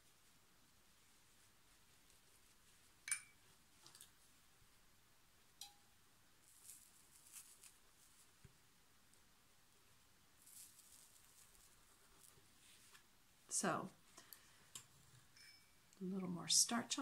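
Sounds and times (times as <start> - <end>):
soft rustling: 0.0 - 4.8, 6.4 - 16.1
tools clinking on table: 3.1 - 3.4.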